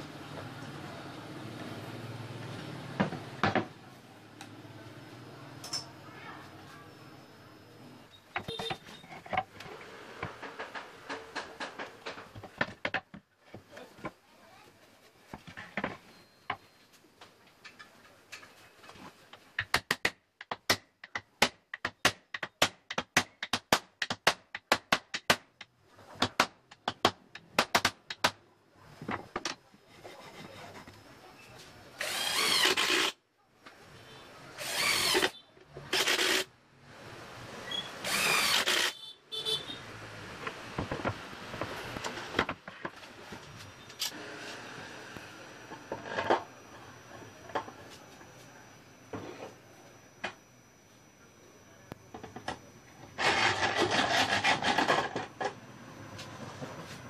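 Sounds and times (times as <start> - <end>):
electric hand drill running: 32.0 - 33.2, 34.6 - 35.3, 35.9 - 36.5, 38.0 - 39.0, 53.2 - 55.5.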